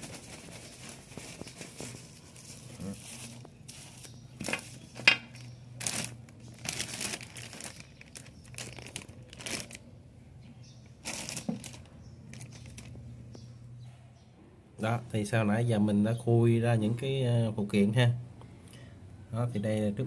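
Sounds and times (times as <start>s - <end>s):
plastic bags crinkling: 0.0s - 9.9s, 10.9s - 13.1s.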